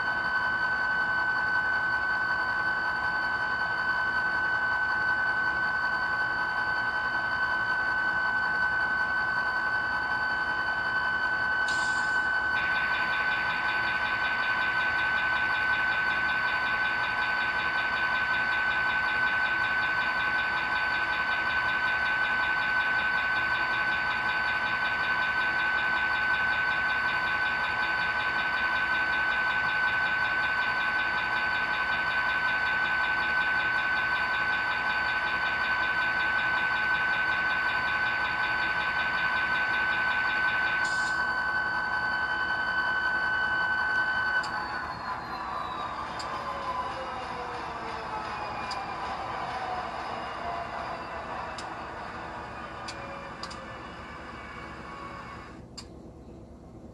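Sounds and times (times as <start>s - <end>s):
high-pitched whine: 0.0s - 56.9s
diesel engine idling through speaker: 11.6s - 41.8s, 44.5s - 56.9s.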